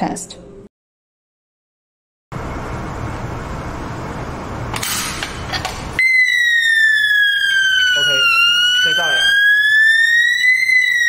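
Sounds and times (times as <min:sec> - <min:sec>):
fire alarm siren: 0:06.0 - 0:11.0.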